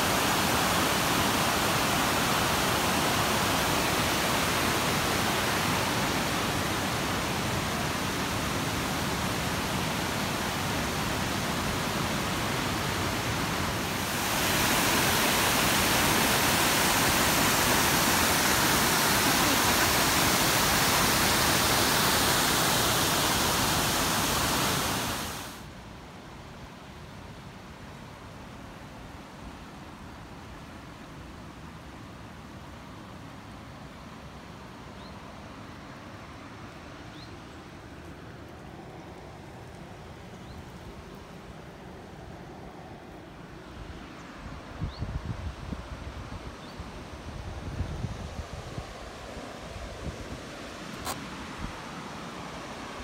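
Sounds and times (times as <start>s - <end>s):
river water pouring over cascades: 0.0s - 25.9s, 45.6s - 53.0s.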